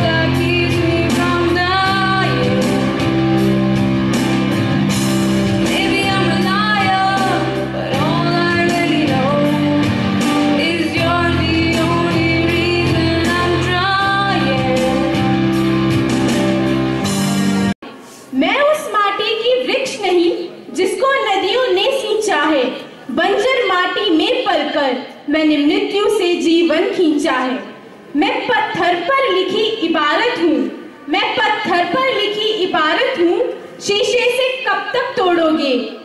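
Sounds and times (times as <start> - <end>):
girl singing pop ballad: 0.0 - 3.0, 5.6 - 15.3
karaoke backing track: 0.0 - 18.3.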